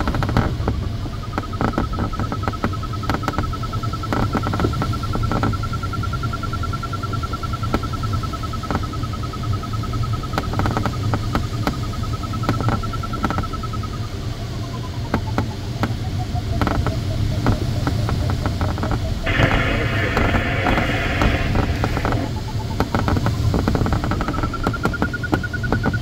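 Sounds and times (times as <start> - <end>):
cockpit airflow noise: 19.2 - 24.7
burst of hiss: 19.3 - 22.6.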